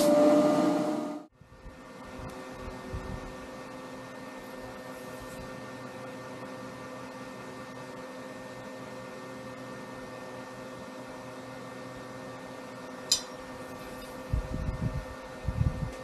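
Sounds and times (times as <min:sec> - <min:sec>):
steady background hum: 0:00.0 - 0:16.0
sharp light click: 0:13.1 - 0:13.4.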